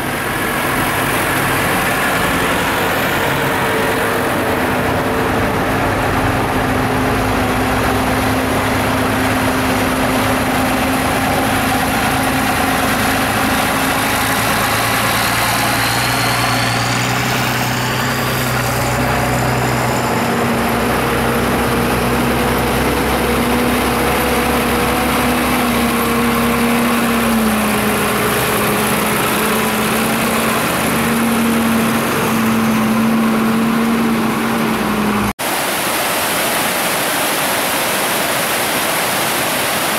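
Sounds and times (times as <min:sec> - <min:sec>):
diesel tractor engines idling: 0:00.0 - 0:35.4.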